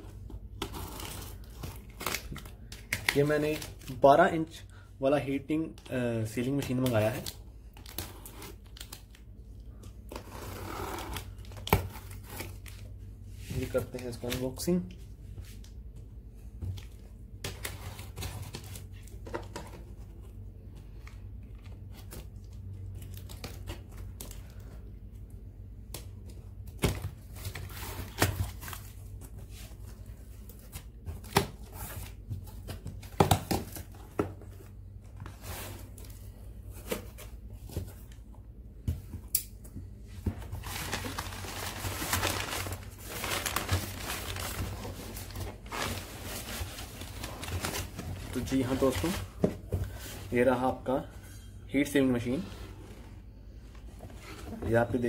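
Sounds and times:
crumpled paper rustling: 40.2 - 50.6.

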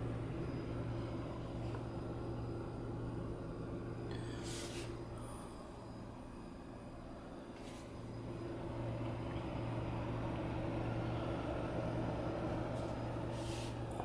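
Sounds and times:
computer cooling fans humming: 0.0 - 14.0.

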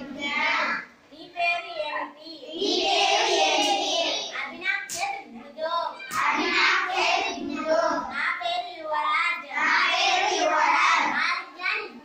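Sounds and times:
children chanting together: 0.0 - 0.9, 2.5 - 5.0, 6.0 - 8.2, 9.5 - 11.2.

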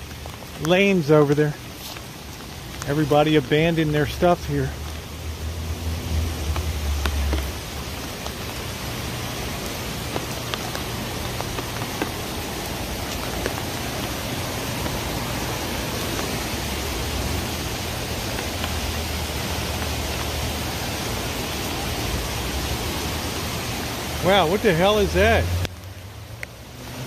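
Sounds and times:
creek rushing: 0.0 - 27.0
falling rain: 0.0 - 27.0
light ticks: 25.6 - 26.6.

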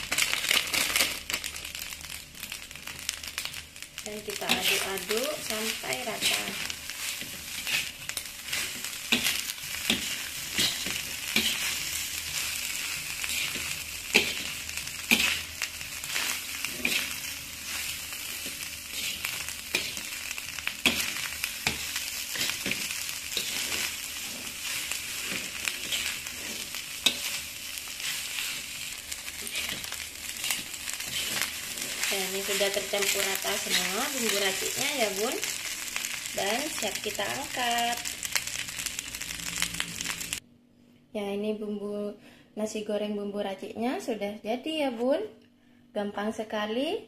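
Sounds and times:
rice sizzling in a pan: 0.0 - 40.4
spatula scraping a pan: 4.4 - 34.9.

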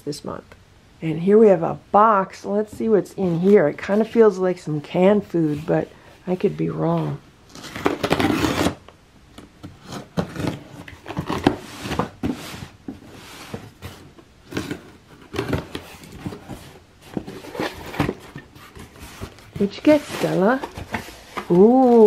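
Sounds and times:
box cutter slicing packing tape: 7.6 - 8.8
cardboard box being handled: 9.9 - 22.0.

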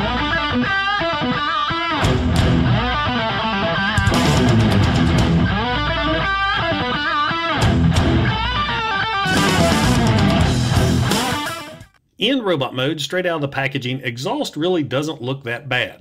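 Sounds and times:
bass guitar: 0.0 - 12.0
rock electric guitar music: 0.0 - 12.0.

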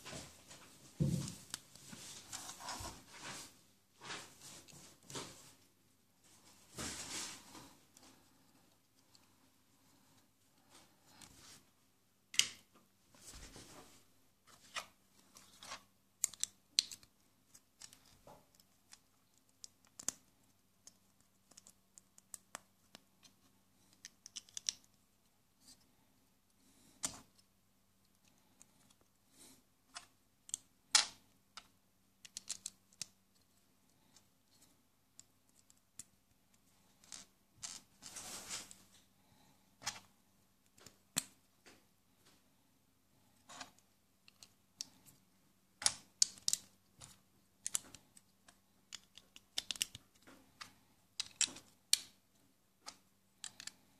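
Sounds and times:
rustling scrapes: 0.0 - 8.5, 37.7 - 39.0
plastic bricks clicking together: 48.9 - 50.0.

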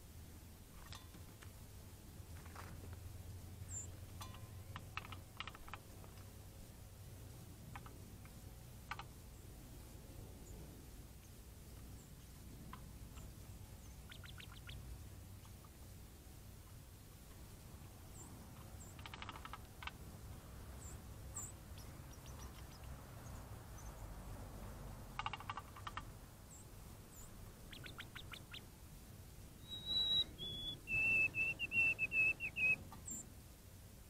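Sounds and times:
sparrow whistled song: 3.7 - 3.9, 13.8 - 14.8, 20.8 - 22.9, 26.5 - 28.6, 29.6 - 33.3
faint high bird chips: 29.6 - 33.3.

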